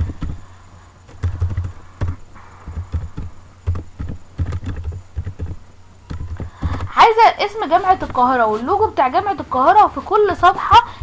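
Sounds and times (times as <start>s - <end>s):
computer keyboard typing: 1.1s - 7.0s.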